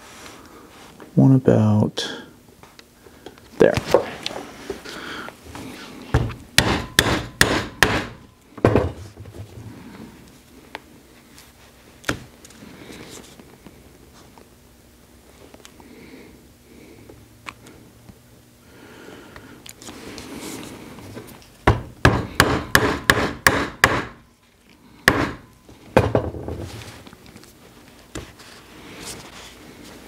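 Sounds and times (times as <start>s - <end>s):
mallet striking hole punch: 6.6s - 8.2s, 21.7s - 24.2s, 25.1s - 25.4s.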